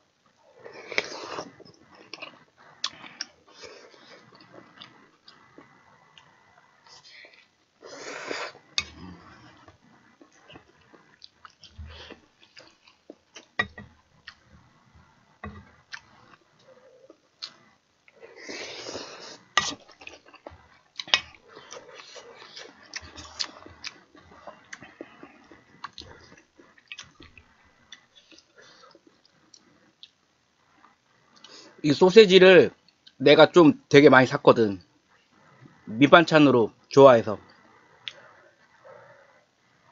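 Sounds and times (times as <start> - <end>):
chewing and mouth noises: 0.8 - 7.5, 15.5 - 30.2.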